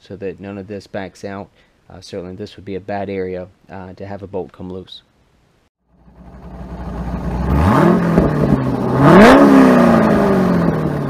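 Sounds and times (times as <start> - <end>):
car engine accelerating: 5.9 - 11.0
sharp crack from engine: 6.0 - 8.7.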